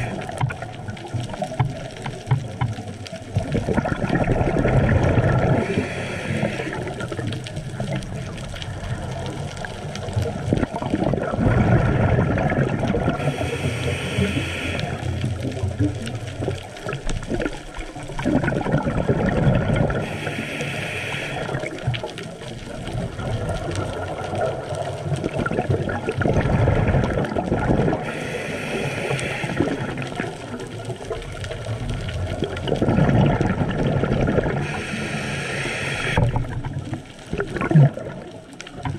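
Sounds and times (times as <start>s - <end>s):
exhaled bubbles gurgling: 0.0s - 38.9s
regulator inhale hiss: 5.6s - 7.3s, 13.2s - 15.2s, 20.0s - 21.8s, 28.0s - 30.0s, 34.6s - 36.3s.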